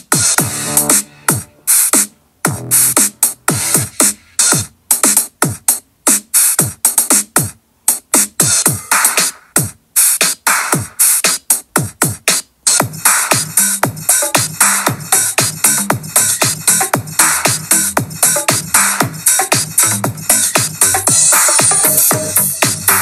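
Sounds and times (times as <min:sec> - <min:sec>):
synthesizer: 0:00.0 - 0:07.3, 0:08.2 - 0:23.0
drum machine beat: 0:00.0 - 0:23.0.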